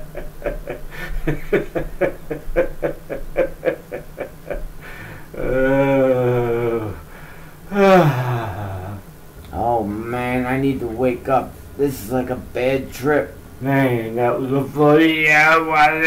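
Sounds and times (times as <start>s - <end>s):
person cackling laughter: 0.0s - 6.4s.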